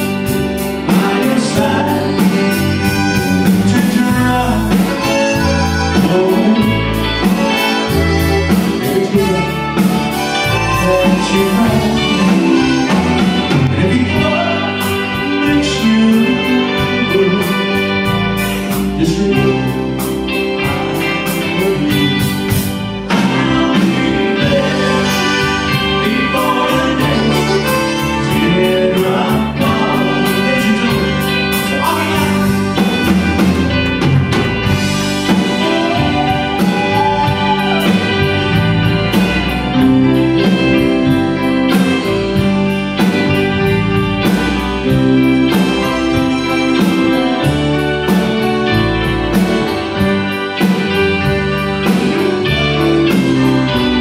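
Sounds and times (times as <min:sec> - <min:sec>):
drum kit: 0:00.0 - 0:54.0
electric guitars: 0:00.0 - 0:54.0
keyboard: 0:00.0 - 0:54.0
button accordion: 0:02.0 - 0:15.2
trumpet: 0:02.2 - 0:15.8.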